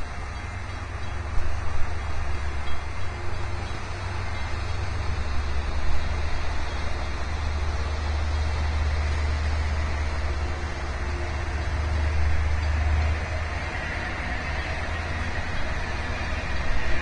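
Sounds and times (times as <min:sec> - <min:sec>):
continuous hiss: 0:00.0 - 0:17.0
ship engines rumbling: 0:00.0 - 0:17.0.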